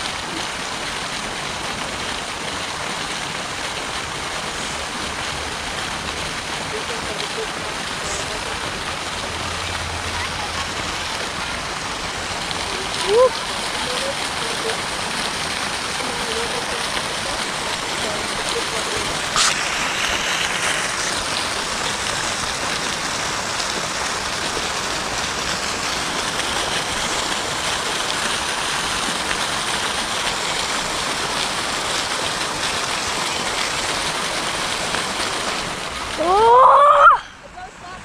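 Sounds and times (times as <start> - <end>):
fountain water splashing into pool: 0.0 - 38.0.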